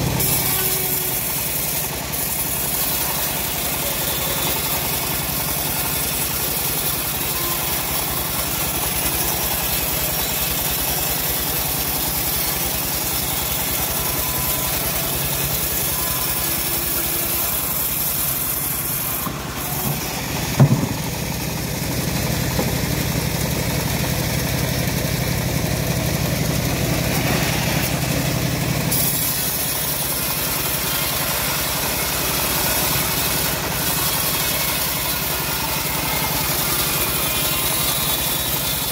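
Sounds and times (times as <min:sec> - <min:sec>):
bandsaw mill cutting log: 0:00.0 - 0:38.9
sharp knock: 0:19.8 - 0:21.1.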